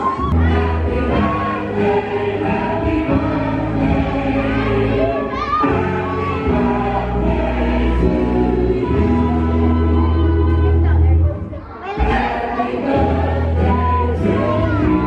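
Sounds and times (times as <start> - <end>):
person singing: 12.0 - 15.0.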